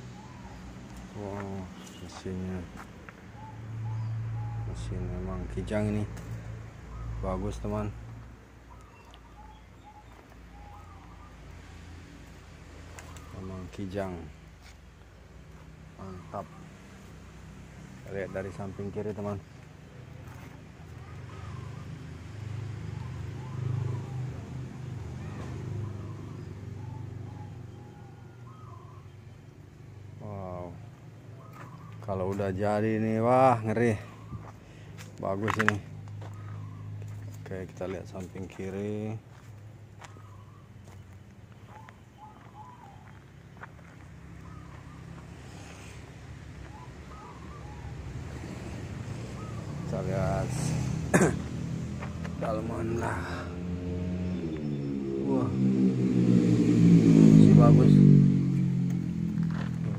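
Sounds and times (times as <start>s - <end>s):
bird chirping: 0.0s - 50.9s, 51.8s - 56.1s
vehicle engine running: 48.4s - 59.9s.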